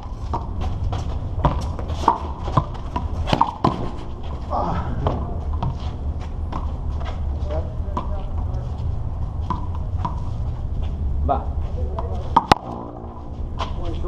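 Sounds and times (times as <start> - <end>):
handball smacking wall and pavement: 0.0 - 8.5, 9.2 - 10.4, 11.9 - 13.9
steady low rumble: 0.0 - 14.0.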